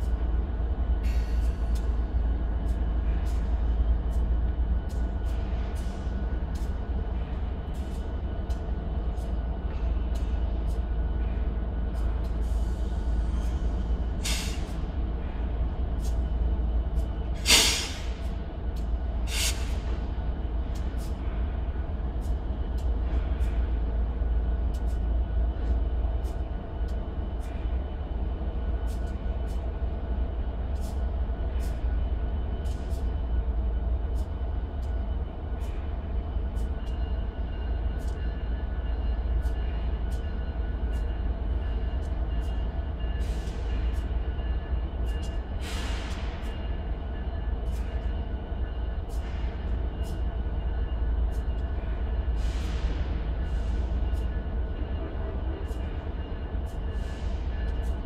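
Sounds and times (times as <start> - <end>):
diesel locomotives idling: 0.0 - 58.0
air hissing: 17.4 - 18.2, 19.3 - 19.8.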